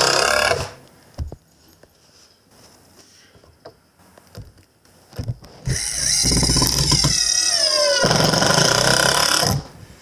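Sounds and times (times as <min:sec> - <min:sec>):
cordless drill driving screw: 0:05.6 - 0:09.6.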